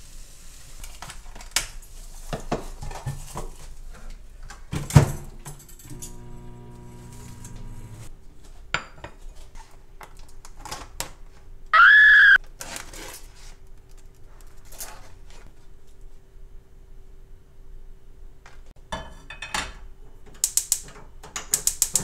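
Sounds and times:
microwave humming: 0:05.8 - 0:08.1
microwave click: 0:05.9 - 0:08.1
person yelping: 0:11.8 - 0:12.4.

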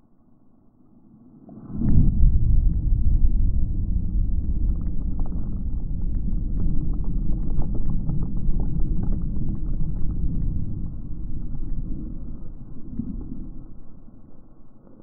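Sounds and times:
battery burning with deep rumble: 0:01.5 - 0:15.0
crackles and pops: 0:01.5 - 0:15.0.

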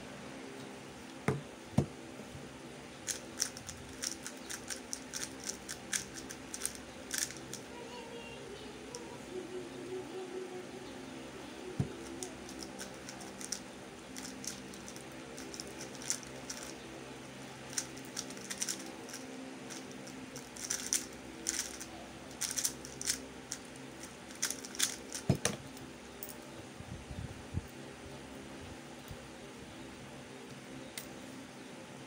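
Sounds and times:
electric fan hum: 0:00.0 - 0:32.0
plastic puzzle cube clicking: 0:03.1 - 0:07.4, 0:14.2 - 0:16.7, 0:17.7 - 0:19.8, 0:20.6 - 0:21.8, 0:22.4 - 0:23.2, 0:24.4 - 0:25.2.

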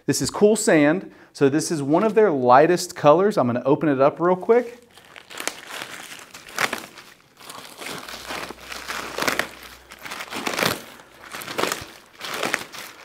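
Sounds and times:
plastic wrapper crinkling: 0:04.4 - 0:13.0
plastic wrapper ripping: 0:04.5 - 0:13.0.

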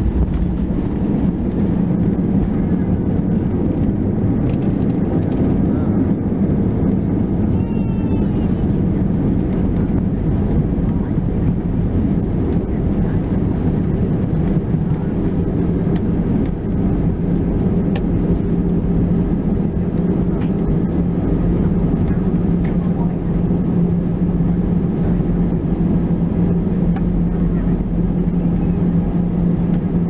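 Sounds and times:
high rising whine: 0:00.0 - 0:03.1
aircraft cabin rumble: 0:00.0 - 0:30.0.

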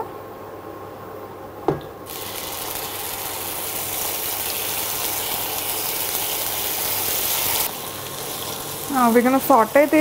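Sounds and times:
onion paste sizzling in hot oil: 0:02.0 - 0:10.0.

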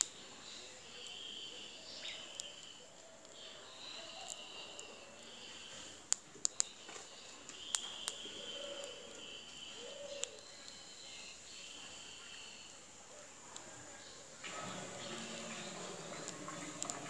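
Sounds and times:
squirrel crunching grain: 0:00.0 - 0:09.3, 0:14.5 - 0:17.0
faint bird chirps: 0:00.0 - 0:14.4.

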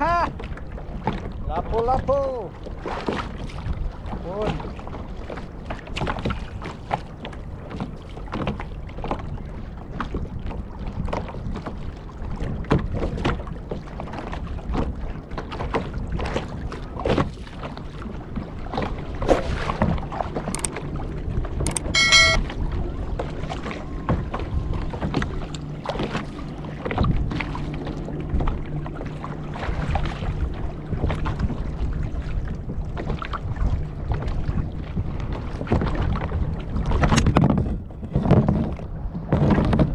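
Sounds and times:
paddling water noise: 0:00.0 - 0:39.9
low steady hum: 0:20.2 - 0:35.4
brief high tone: 0:21.7 - 0:22.5.

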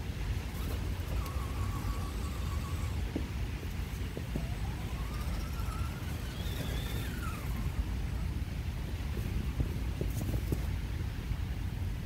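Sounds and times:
toy car electric motor whining: 0:00.3 - 0:08.5.

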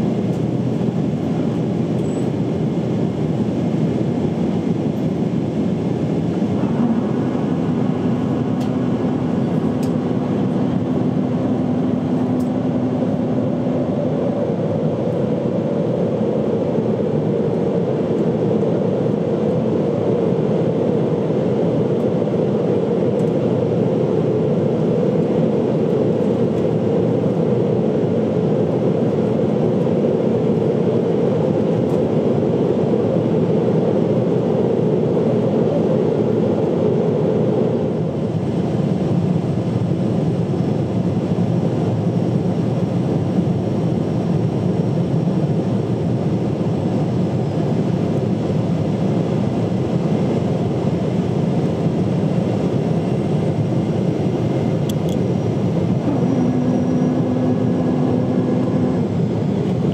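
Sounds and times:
airliner cabin engine rush: 0:00.0 - 0:59.9
steady low hum: 0:00.0 - 0:59.9
higher hum: 0:05.3 - 0:20.0, 0:54.8 - 0:59.9.

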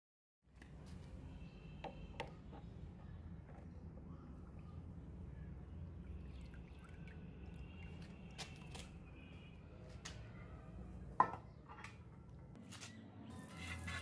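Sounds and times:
water sloshing and dripping: 0:06.0 - 0:09.0.

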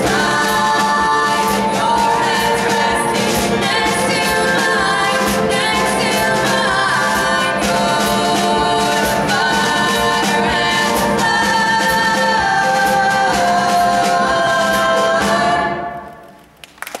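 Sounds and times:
women singing in harmony: 0:00.0 - 0:16.2
drums: 0:00.0 - 0:17.0
piano: 0:00.0 - 0:17.0.

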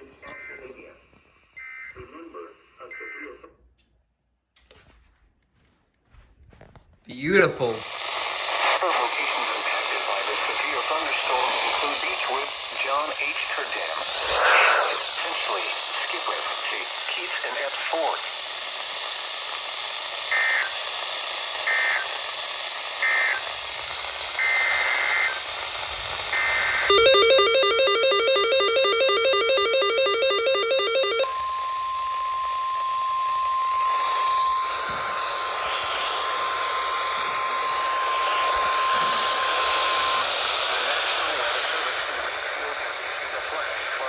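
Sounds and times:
radio static hiss: 0:00.0 - 0:03.6, 0:07.1 - 0:31.3, 0:33.5 - 0:44.0
steady warning alarm tone: 0:26.4 - 0:40.6
buzzy digital data bursts: 0:26.5 - 0:31.3
short high beeps: 0:26.9 - 0:31.3.

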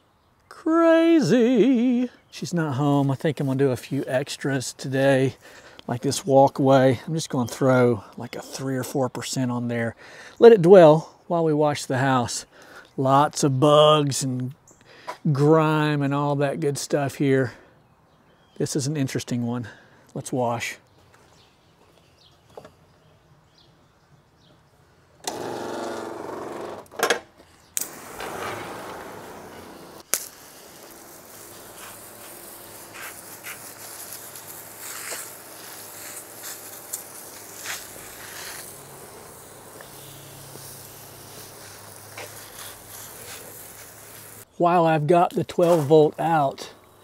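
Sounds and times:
small motor buzz: 0:25.2 - 0:26.9, 0:27.8 - 0:44.4
pump spray hissing: 0:27.8 - 0:44.5.

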